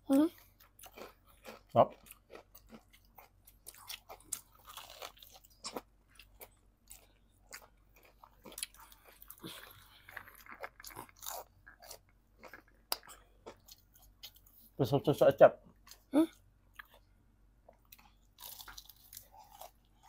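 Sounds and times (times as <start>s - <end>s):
wet chewing: 0.3s - 14.6s
fried chicken crunching: 0.8s - 14.4s, 17.9s - 20.0s.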